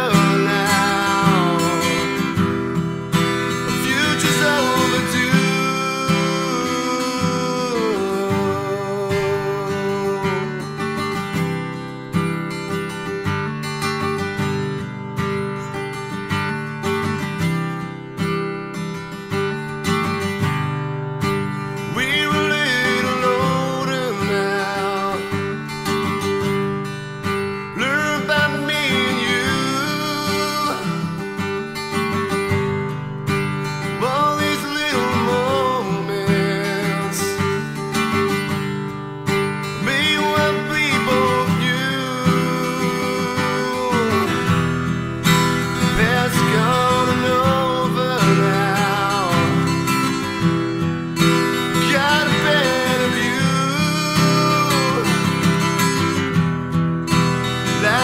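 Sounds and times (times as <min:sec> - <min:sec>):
man singing: 0:00.0 - 0:11.6, 0:21.7 - 0:26.8, 0:27.5 - 0:32.6, 0:33.6 - 0:38.6, 0:39.4 - 0:56.4, 0:57.2 - 0:58.0
acoustic guitar strumming: 0:00.0 - 0:58.0.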